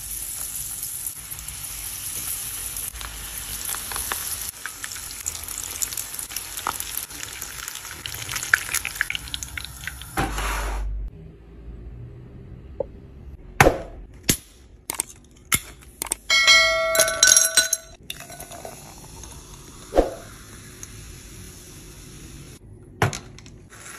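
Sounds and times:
ice cubes clinking into glass: 16.3s - 19.0s
cola fizzing over ice: 18.0s - 21.0s.

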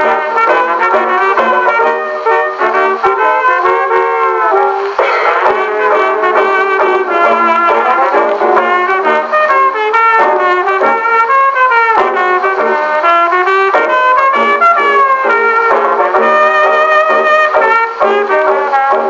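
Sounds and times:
brass-led jazz band on old record: 0.0s - 19.0s.

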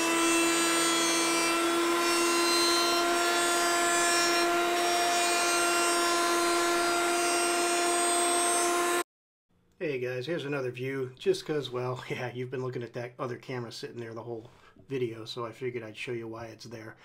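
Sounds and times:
jointer whining while planing board: 0.0s - 9.0s.

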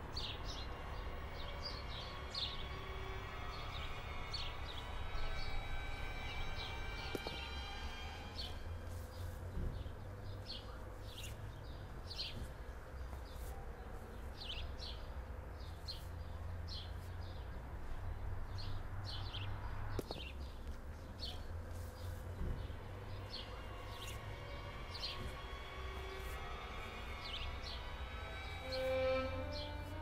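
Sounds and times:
small birds chirping: 0.0s - 5.6s, 8.4s - 30.0s
low steady rumble: 15.2s - 30.0s.

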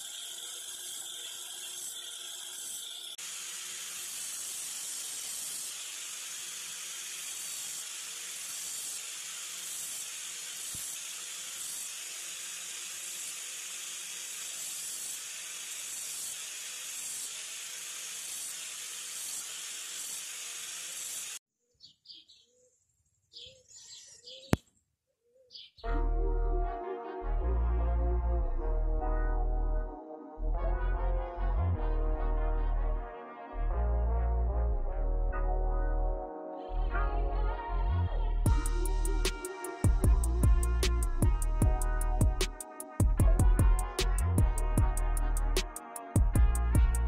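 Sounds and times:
angle grinder grinding metal: 0.0s - 21.4s.

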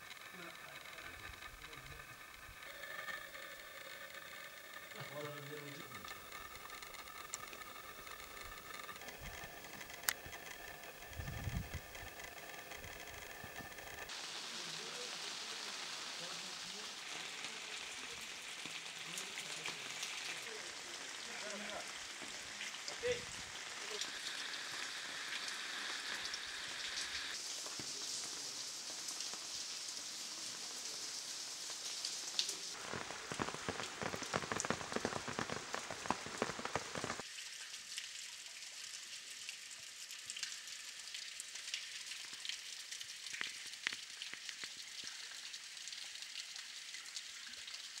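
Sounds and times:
rain falling: 0.0s - 48.0s
scattered drips: 0.0s - 48.0s
sharp ticks of raindrops: 0.0s - 48.0s.

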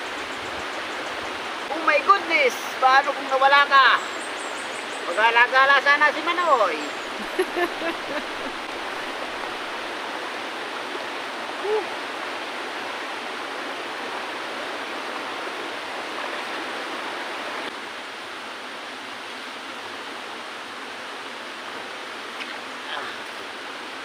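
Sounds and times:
river rushing over rocks: 5.1s - 24.0s.

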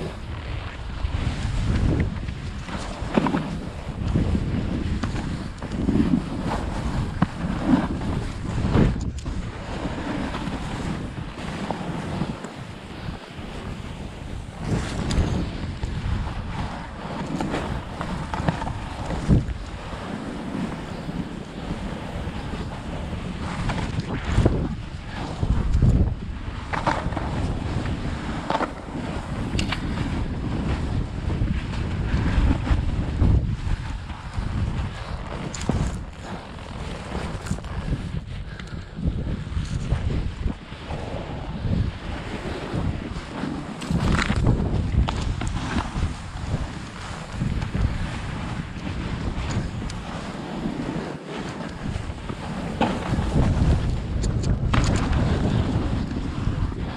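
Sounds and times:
wind buffeting microphone: 0.0s - 56.9s
snowboard hissing through powder: 9.4s - 25.6s.

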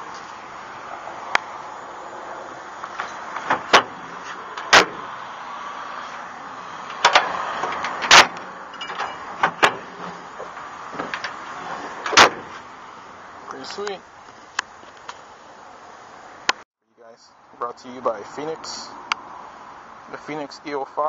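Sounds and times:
tailgate metal clanks: 4.6s - 5.1s, 6.9s - 12.6s.

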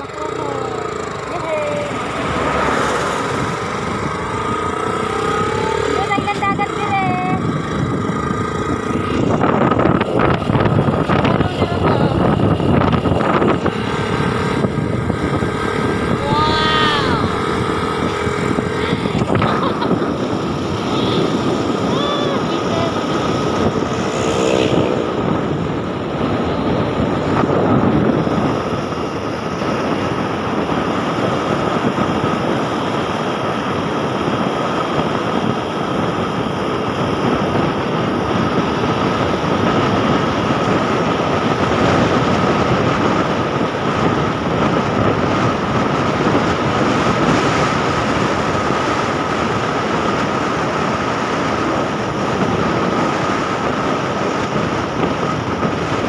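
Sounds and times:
constant high whine: 0.0s - 56.0s
vehicle engine and road noise: 0.0s - 56.0s.

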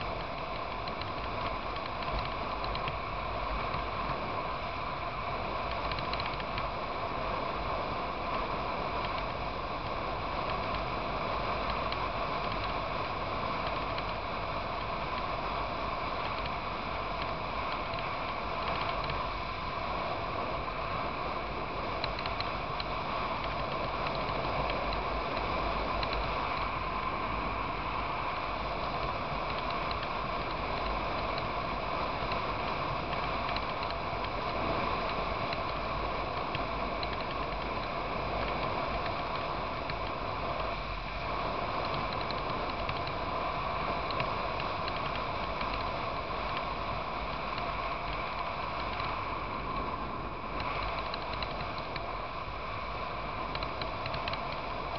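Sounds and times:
wind and road noise: 0.0s - 54.9s.

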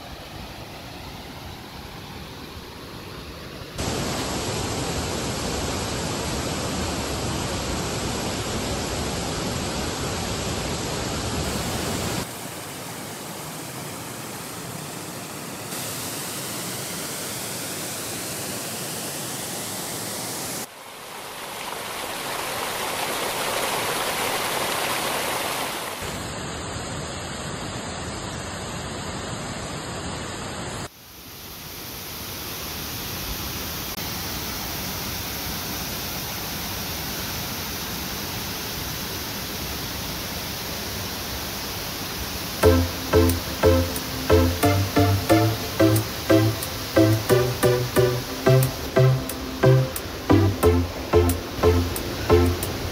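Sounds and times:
waterfall rushing: 3.8s - 26.3s, 42.6s - 52.9s.

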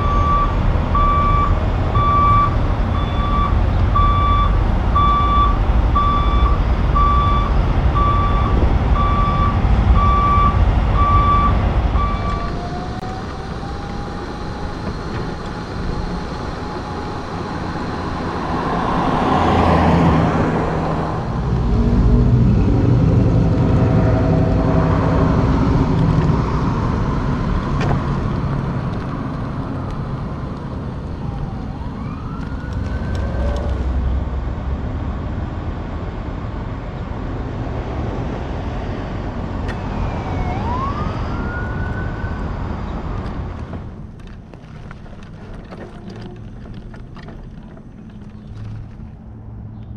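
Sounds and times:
truck reverse alarm beeping: 0.0s - 18.3s
diesel engine running: 0.0s - 49.9s
truck passing on road: 0.0s - 49.9s.

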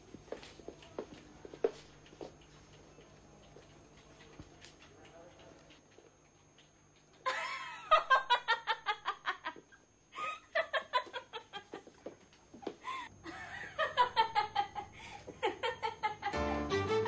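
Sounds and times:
person laughing: 7.3s - 9.6s, 13.3s - 16.4s.

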